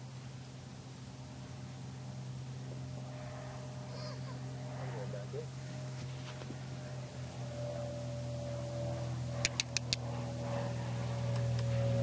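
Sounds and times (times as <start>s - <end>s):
machine hum: 0.0s - 12.0s
quick sharp clicks: 9.4s - 10.0s.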